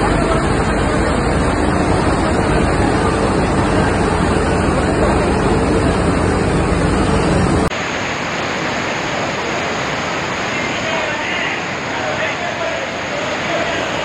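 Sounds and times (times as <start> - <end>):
floodwater rushing down steps: 7.7 - 14.0.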